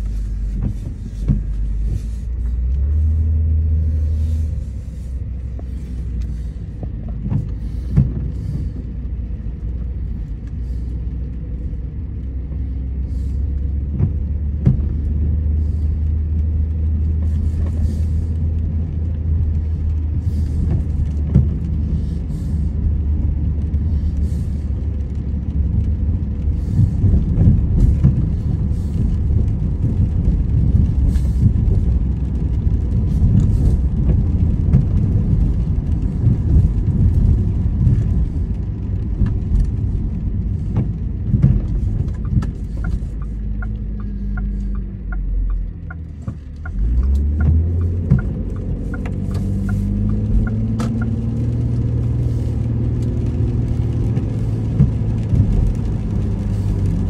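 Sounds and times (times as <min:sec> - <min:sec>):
car engine and tyres rumbling: 0:00.0 - 0:57.0
light regular ticking: 0:00.0 - 0:57.0.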